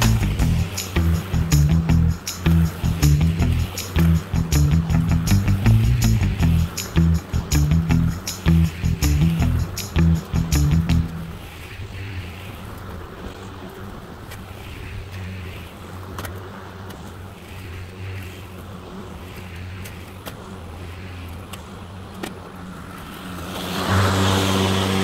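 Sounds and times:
electric lawn mower humming: 0:00.0 - 0:11.3, 0:22.6 - 0:25.0.

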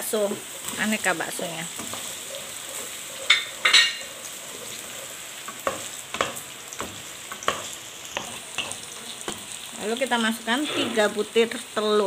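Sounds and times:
food sizzling in hot oil: 0:00.0 - 0:12.0
spatula scraping a wok: 0:00.2 - 0:09.5, 0:10.4 - 0:11.3.

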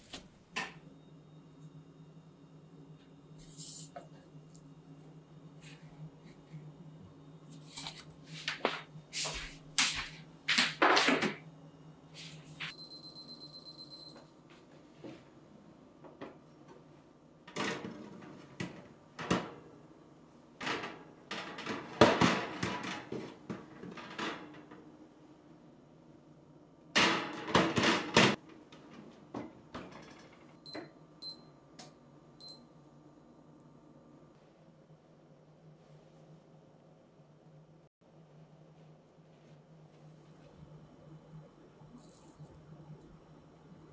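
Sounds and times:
baking sheet clattering on racks: 0:08.5 - 0:11.4, 0:20.6 - 0:24.7, 0:27.0 - 0:28.4
kitchen timer beeping: 0:12.7 - 0:14.3, 0:30.7 - 0:31.5, 0:32.4 - 0:32.7.

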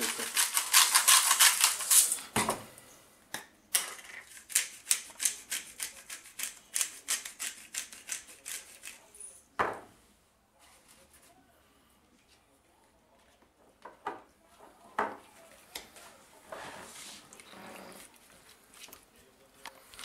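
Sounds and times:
pepper grinder grinding: 0:00.0 - 0:02.2.

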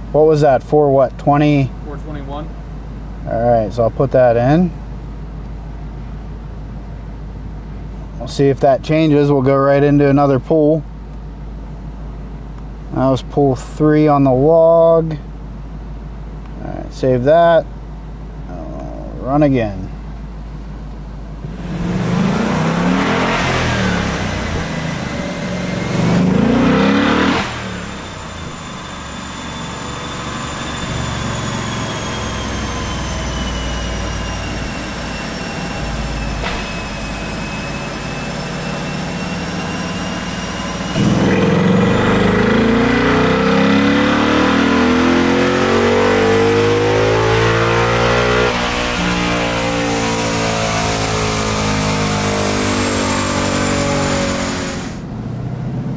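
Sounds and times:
car engine revving on a dyno: 0:21.4 - 0:55.9.

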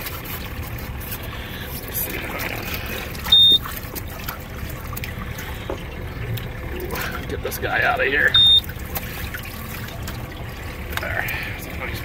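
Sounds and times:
water trickling and sloshing: 0:00.0 - 0:12.0
high-pitched electronic beep: 0:03.3 - 0:03.6, 0:08.3 - 0:08.6.

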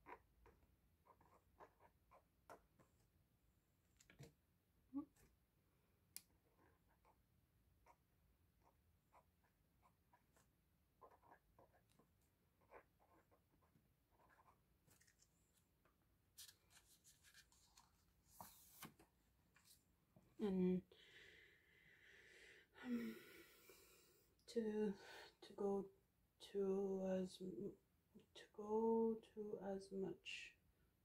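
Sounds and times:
pen scratching on paper: 0:00.0 - 0:02.9, 0:06.3 - 0:14.7.

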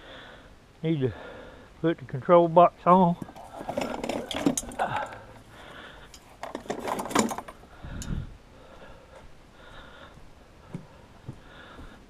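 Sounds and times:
metallic clinks and knocks: 0:03.2 - 0:05.2, 0:06.0 - 0:08.2.

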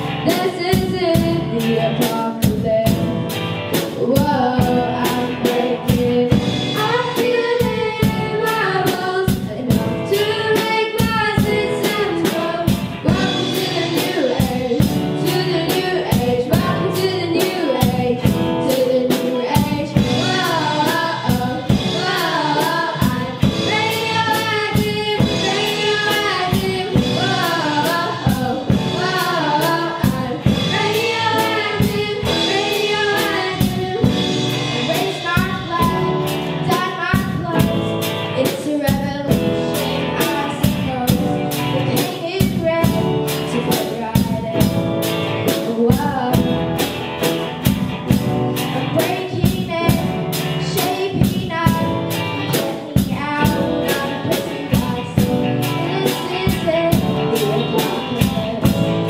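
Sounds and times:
girls singing: 0:00.0 - 0:02.9, 0:03.9 - 0:44.6, 0:48.8 - 0:59.0
drum kit beat: 0:00.0 - 0:59.0
electric bass: 0:00.0 - 0:59.0
electric guitar: 0:00.0 - 0:59.0
keyboard: 0:00.0 - 0:59.0.

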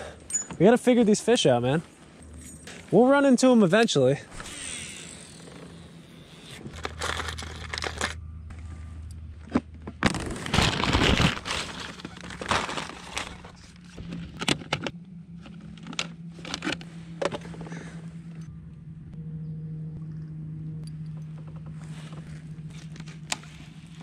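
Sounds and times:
plastic packaging crinkling: 0:06.7 - 0:08.2, 0:10.0 - 0:13.8.

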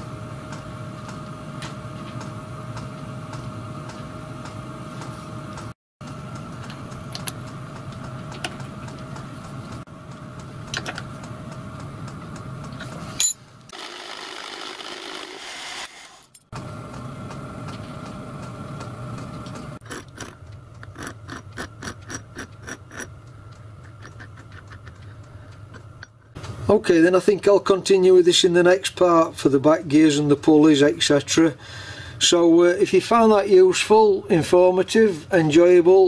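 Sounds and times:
milling machine motor hum: 0:00.0 - 0:26.8
occasional clicks: 0:16.9 - 0:26.6.

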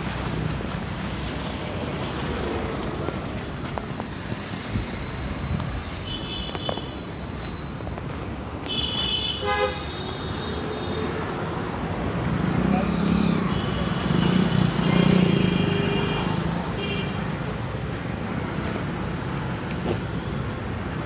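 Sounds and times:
street traffic: 0:00.0 - 0:21.0
vehicle horns: 0:08.6 - 0:11.1.

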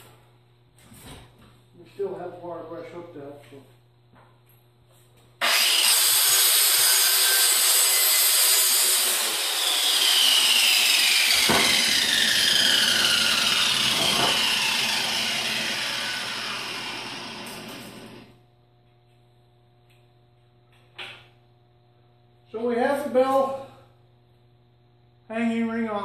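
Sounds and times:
falling whine: 0:09.7 - 0:18.4.

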